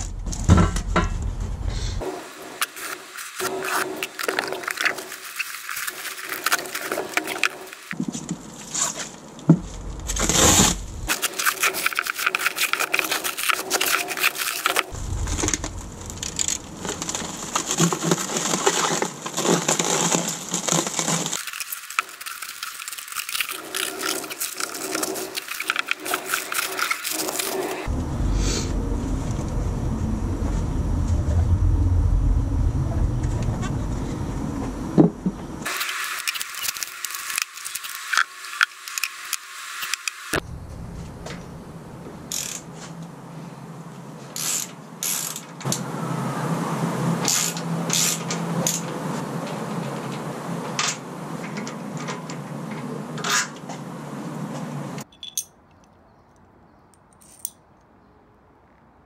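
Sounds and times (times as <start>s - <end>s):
plastic wrap crinkling and tearing: 2.6s - 8.0s, 10.1s - 27.9s, 35.6s - 39.2s.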